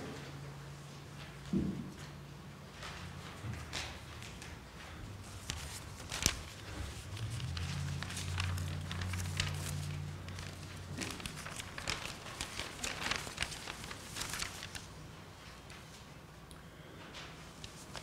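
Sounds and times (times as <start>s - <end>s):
low steady hum: 0.0s - 18.0s
paper rustling: 2.7s - 16.1s, 17.1s - 18.0s.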